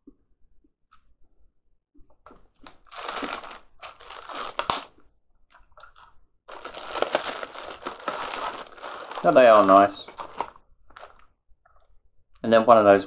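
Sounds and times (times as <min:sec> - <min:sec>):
biscuit crunching: 0:02.3 - 0:11.8.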